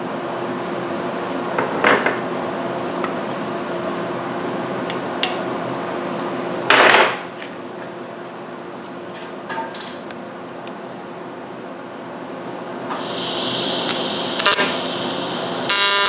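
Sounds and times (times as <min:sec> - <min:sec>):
short high squeaks: 0:10.4 - 0:10.9
welding arc buzzing: 0:12.9 - 0:16.0.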